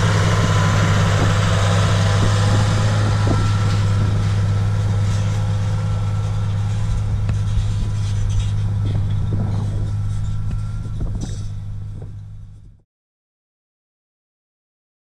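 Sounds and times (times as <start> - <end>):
tractor diesel engine running: 0.0 - 12.8.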